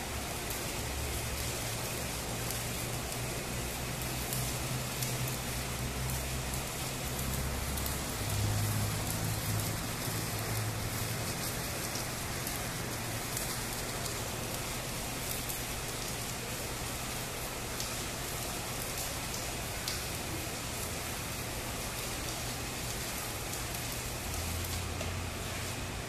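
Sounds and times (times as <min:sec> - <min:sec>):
welding arc crackling: 0:00.0 - 0:26.0.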